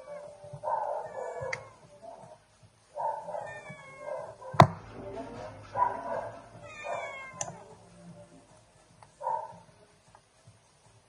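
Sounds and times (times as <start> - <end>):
animal whining cries: 0.0 - 2.2, 3.1 - 4.6, 6.5 - 7.6.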